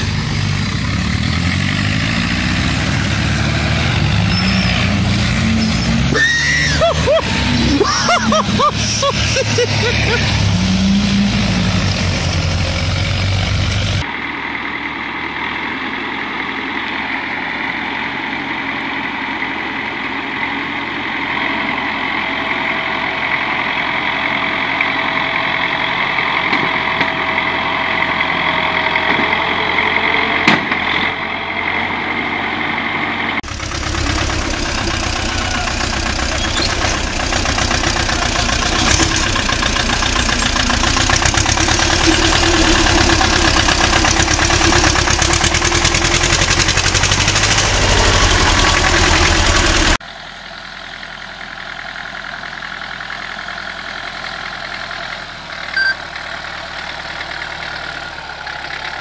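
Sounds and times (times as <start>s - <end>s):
tractor engines running: 0.0s - 59.0s.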